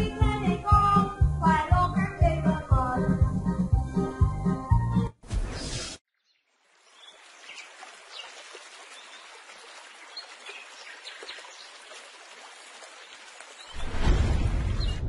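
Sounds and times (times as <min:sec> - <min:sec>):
faint rushing water: 0:06.4 - 0:15.0.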